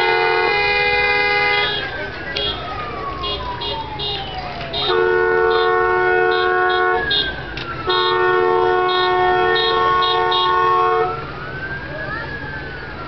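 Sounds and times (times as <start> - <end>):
multi-tone vehicle horn blasts: 0.0 - 4.2, 4.8 - 11.1
siren rising and falling: 1.7 - 5.0, 10.1 - 13.0.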